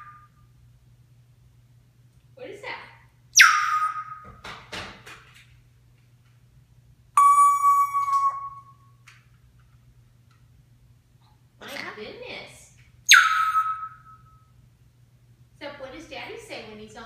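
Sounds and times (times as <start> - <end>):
parrot whistling: 0.0 - 0.4, 3.4 - 4.4, 7.2 - 8.8, 13.1 - 14.4
parrot rough calls: 3.4 - 4.2.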